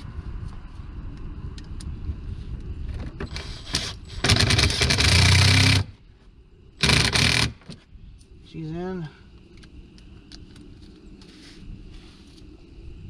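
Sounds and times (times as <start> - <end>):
power tool rapid strokes: 3.3 - 5.9, 6.8 - 7.6.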